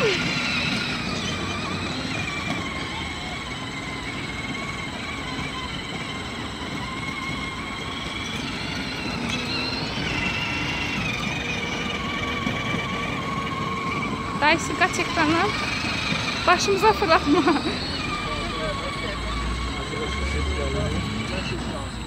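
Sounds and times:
electric motor whine: 0:00.0 - 0:22.0
plastic wheels rumbling on bricks: 0:00.0 - 0:22.0.

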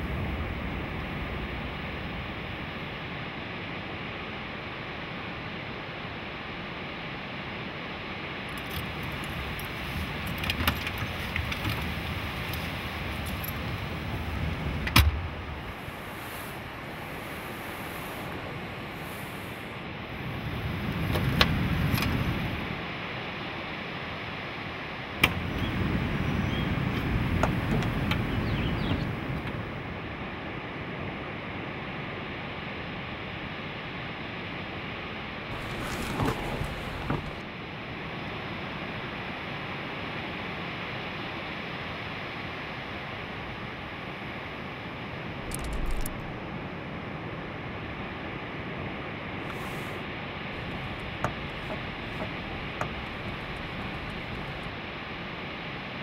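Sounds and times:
wind: 0:00.0 - 0:56.0
surf rushing: 0:08.2 - 0:23.2, 0:35.5 - 0:37.5.

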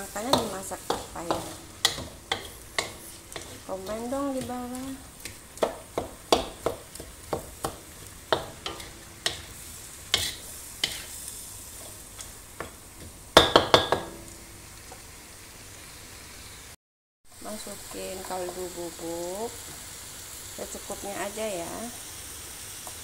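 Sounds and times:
spatula scraping and knocking wok: 0:00.0 - 0:15.1
steady sizzle: 0:00.0 - 0:23.0.

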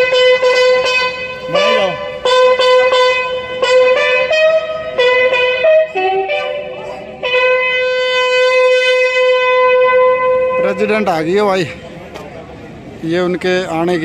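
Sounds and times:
brass fanfare: 0:00.0 - 0:11.1.

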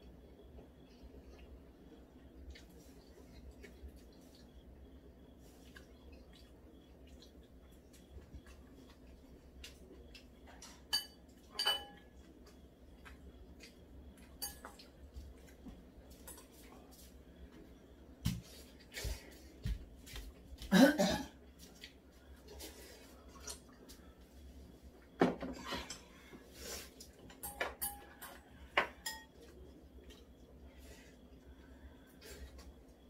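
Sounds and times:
tableware clattering: 0:10.6 - 0:12.0, 0:14.4 - 0:14.8, 0:27.3 - 0:29.4
tableware clinking against bowls: 0:10.6 - 0:12.1, 0:14.3 - 0:14.9, 0:27.3 - 0:29.4.

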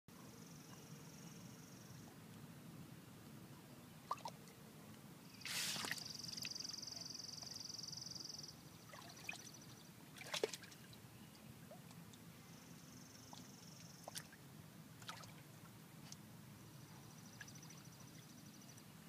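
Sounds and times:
high steady hiss: 0:00.1 - 0:08.9, 0:11.0 - 0:19.0
light water splashes: 0:04.0 - 0:04.6, 0:05.4 - 0:07.6, 0:08.8 - 0:12.3, 0:13.2 - 0:16.2
water trickling and sloshing: 0:04.0 - 0:04.6, 0:05.4 - 0:07.7, 0:08.7 - 0:12.3, 0:13.2 - 0:16.2.

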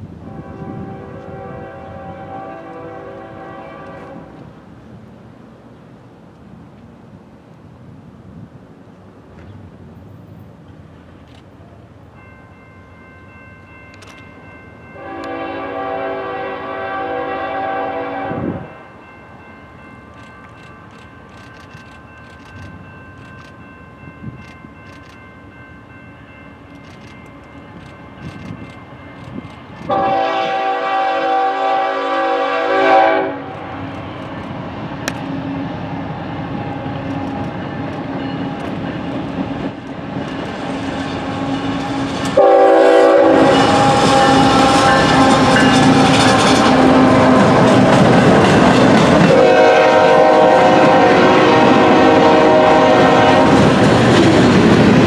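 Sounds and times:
locomotive horn blasts: 0:00.2 - 0:04.4, 0:15.0 - 0:18.7, 0:29.9 - 0:33.8, 0:42.4 - 0:47.6, 0:49.3 - 0:53.7
locomotive engine: 0:33.2 - 0:55.0.

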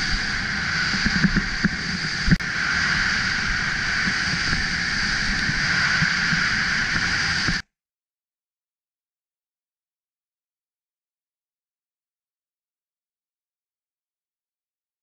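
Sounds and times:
skis sliding over snow: 0:00.0 - 0:07.6
wind rushing: 0:00.0 - 0:07.6.

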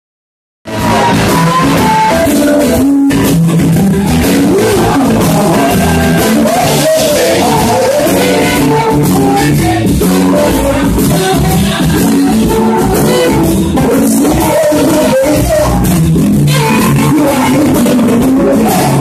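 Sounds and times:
live blues band playing: 0:00.7 - 0:19.0
woman singing: 0:16.5 - 0:19.0.

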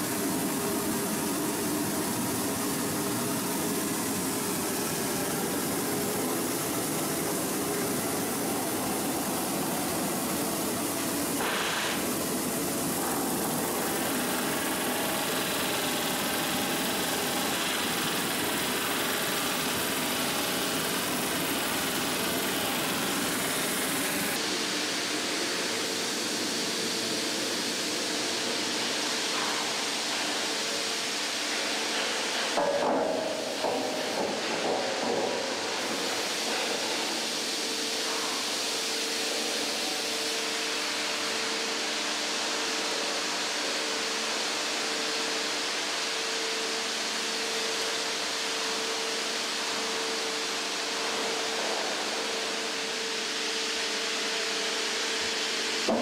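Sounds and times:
machinery running: 0:00.0 - 0:25.6.

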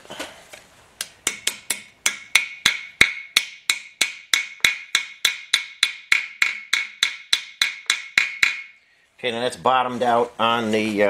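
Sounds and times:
hammer tapping metal plug: 0:01.2 - 0:08.7.

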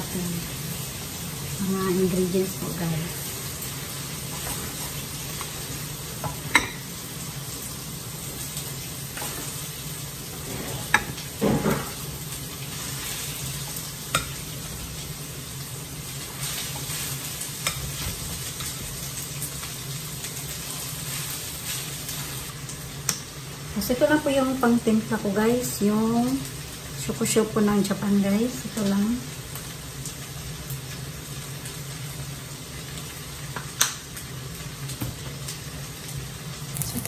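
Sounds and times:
rice sizzling in a frying pan: 0:00.0 - 0:37.0.

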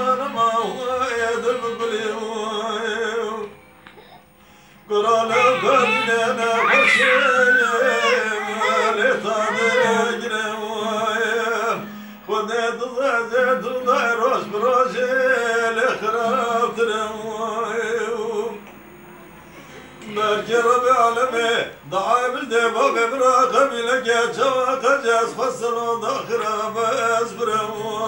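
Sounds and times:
man singing folk melody: 0:00.0 - 0:03.6, 0:04.8 - 0:18.6, 0:20.0 - 0:28.0
long-necked lute strumming: 0:04.9 - 0:18.6.

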